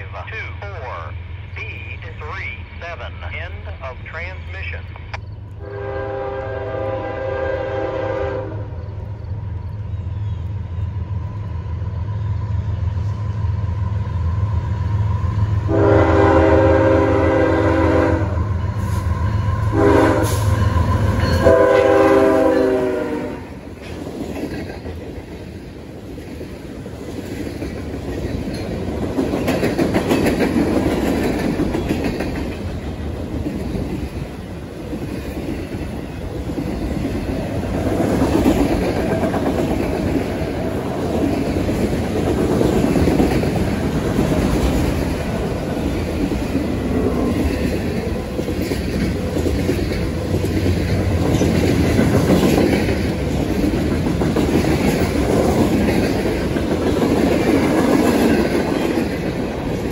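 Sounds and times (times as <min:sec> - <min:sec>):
steel wheels rumbling on rail: 0:00.0 - 0:59.9
wheels clacking over rail joints: 0:23.8 - 0:46.6.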